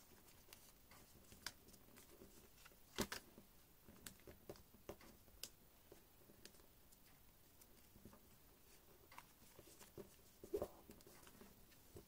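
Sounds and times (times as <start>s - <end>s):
paper crackling as it is folded: 0.0s - 3.3s.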